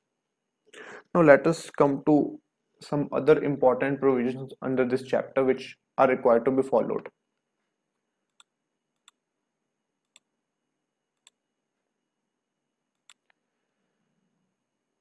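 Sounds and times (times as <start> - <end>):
computer mouse clicks: 12.9 - 13.4.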